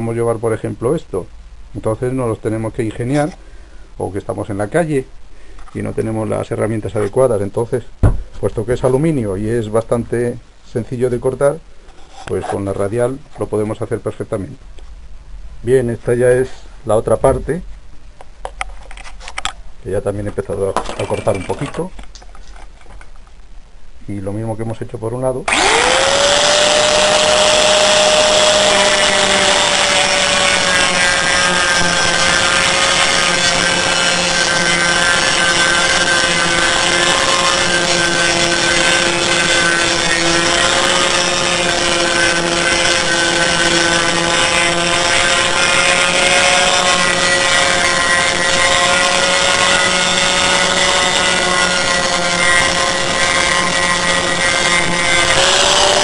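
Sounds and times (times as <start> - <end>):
angle grinder cutting metal: 20.9 - 21.9, 25.5 - 56.0.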